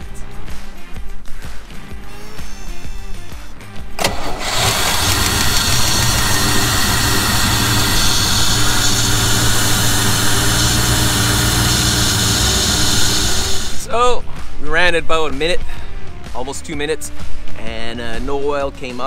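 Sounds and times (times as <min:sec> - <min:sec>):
boat engine idling: 0:04.0 - 0:13.8.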